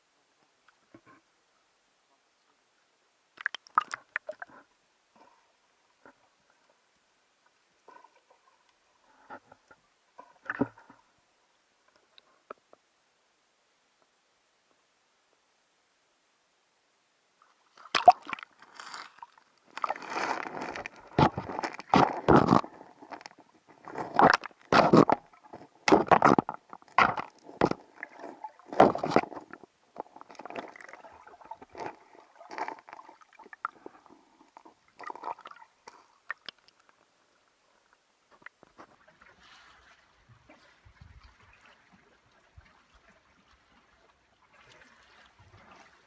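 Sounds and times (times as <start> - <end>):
water sloshing and gurgling: 3.4 - 6.8, 17.7 - 36.8, 38.3 - 46.0.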